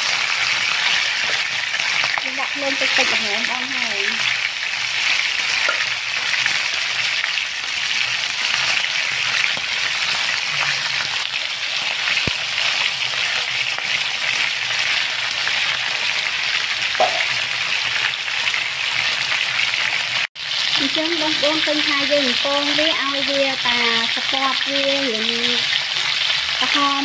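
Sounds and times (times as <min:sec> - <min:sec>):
spatula turning food in pan: 0:00.0 - 0:18.1, 0:20.4 - 0:27.0
chicken sizzling in hot oil: 0:00.0 - 0:27.0
sharp knock: 0:17.0 - 0:17.3.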